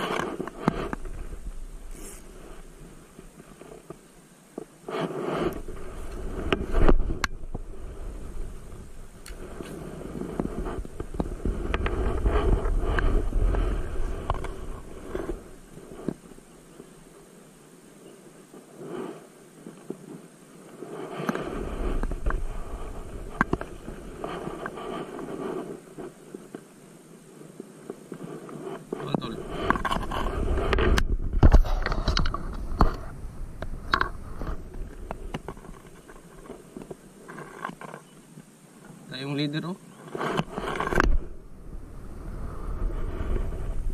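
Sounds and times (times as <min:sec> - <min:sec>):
wind buffeting microphone: 0:05.4 - 0:17.2, 0:21.3 - 0:26.5, 0:29.0 - 0:37.1, 0:40.2 - 0:43.9.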